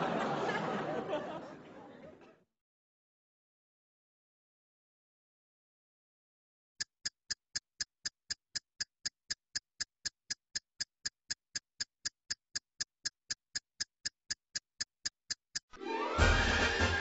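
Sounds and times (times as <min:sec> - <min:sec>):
clock ticking: 0:06.8 - 0:15.8
music: 0:15.8 - 0:17.0.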